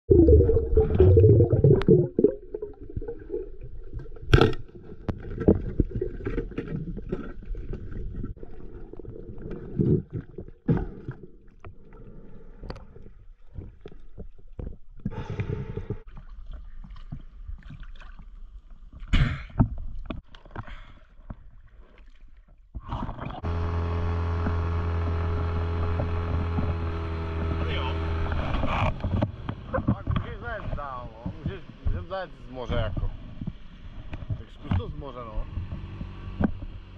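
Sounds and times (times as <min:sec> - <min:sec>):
underwater water movement rumble: 0:00.1 - 0:23.5, 0:24.4 - 0:36.9
small boat engine humming: 0:23.4 - 0:36.9.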